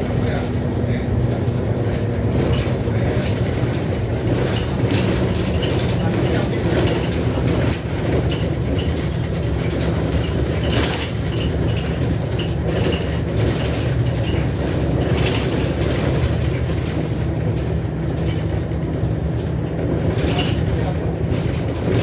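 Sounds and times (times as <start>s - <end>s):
diesel bus engine hum: 0.0s - 22.0s.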